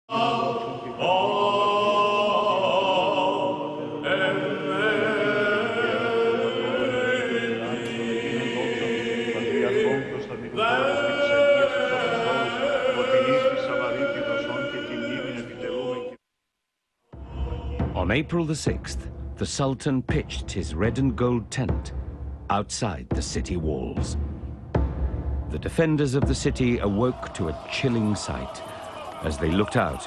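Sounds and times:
choir chanting long held notes: 0.1 - 16.2, 26.7 - 30.0.

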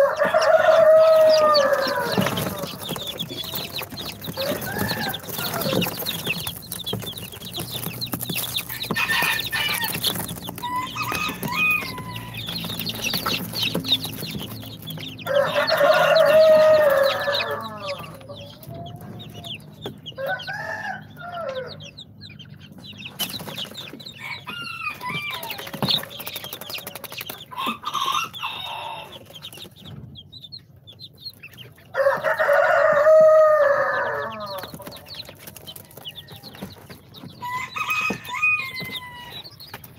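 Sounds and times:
rooster crowing: 0.0 - 6.6, 7.9 - 21.9, 24.2 - 26.0, 26.8 - 29.2, 31.9 - 35.2, 37.4 - 39.6
baby chicks peeping: 0.0 - 39.9.

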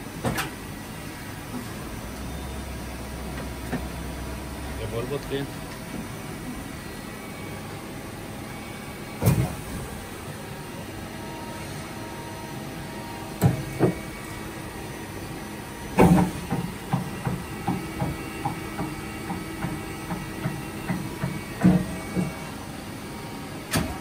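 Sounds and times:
machine humming: 0.0 - 24.0.

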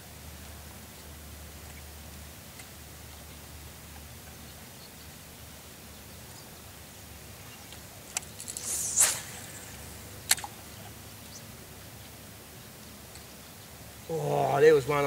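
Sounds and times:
sharp clicks: 8.1 - 10.6
fishing rod whooshing: 8.2 - 10.7.

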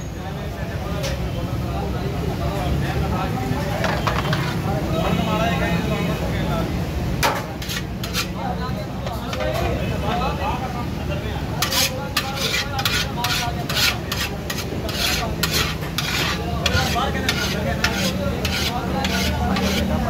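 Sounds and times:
rice scraping against metal: 7.3 - 8.4, 11.6 - 20.0.

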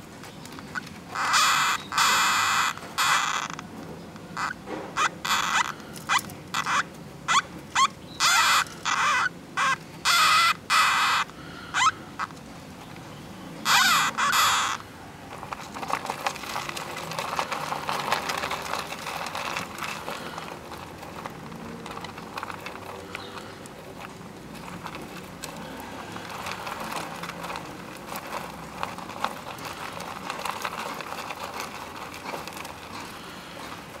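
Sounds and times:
hamsters squeaking: 0.6 - 3.7, 4.3 - 12.4, 13.6 - 14.8, 24.5 - 34.0
rustling in wood-chip bedding: 7.7 - 34.0.

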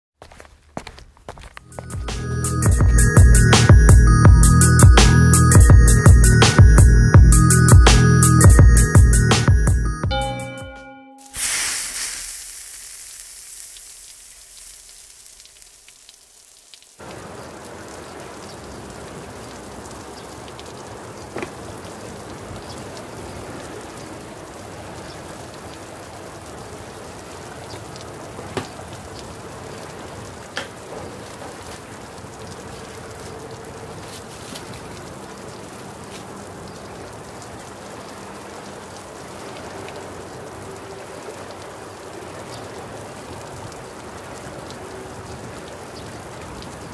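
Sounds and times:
steady hiss: 11.2 - 17.5.

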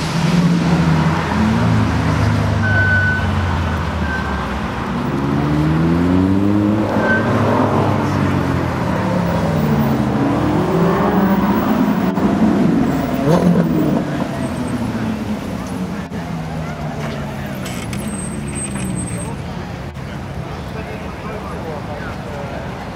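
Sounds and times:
sports cars accelerating past: 0.0 - 16.1
road traffic: 0.0 - 22.9.

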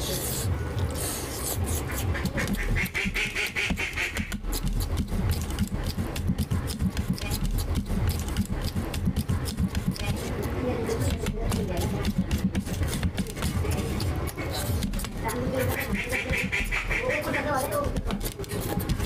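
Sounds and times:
wet lip-smacking and finger sucking: 0.3 - 9.9.

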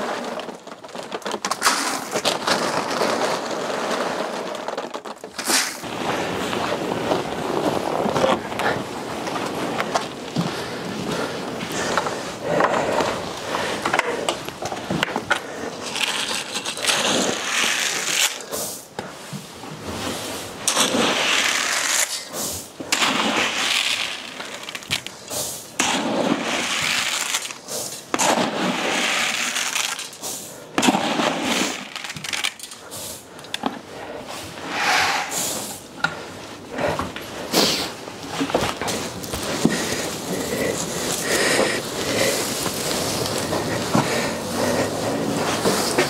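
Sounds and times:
scraping: 0.0 - 18.6
straw rustling and crunching: 37.6 - 46.0.

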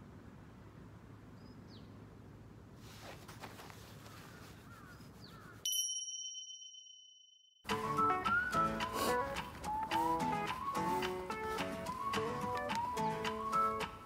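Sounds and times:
soft rustling: 2.8 - 5.6
faint bird chirps: 4.1 - 5.6
high electronic ding tone: 5.7 - 7.6.

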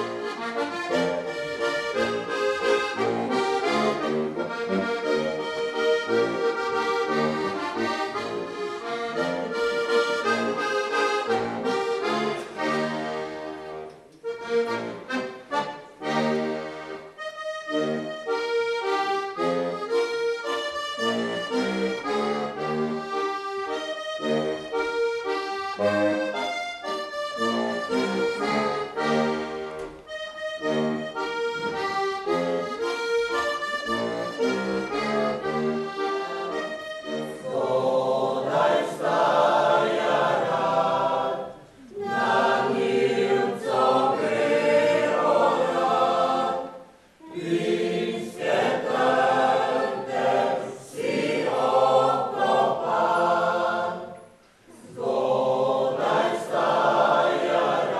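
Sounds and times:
accordion playing folk tune: 0.0 - 57.9.

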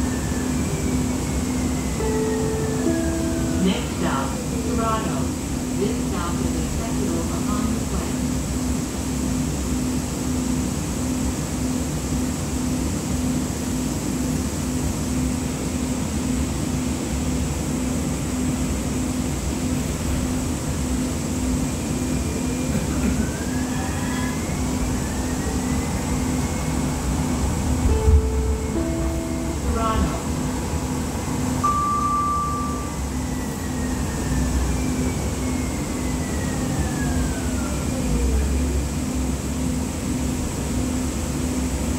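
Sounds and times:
rising whine: 0.0 - 4.7, 21.6 - 40.3
high whine: 0.0 - 6.0, 21.6 - 38.1.

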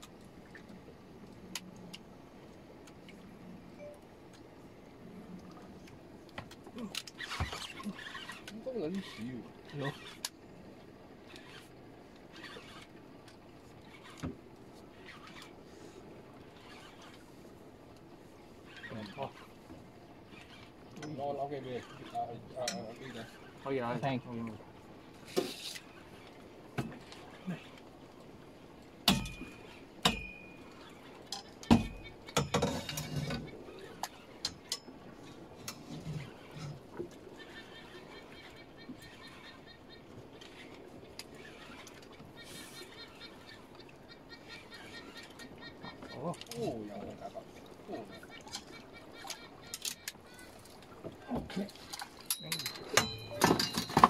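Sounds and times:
fishing reel rasping: 7.2 - 10.3, 11.2 - 11.7, 12.3 - 12.9
scraping rustle: 25.2 - 25.9, 32.6 - 33.6.

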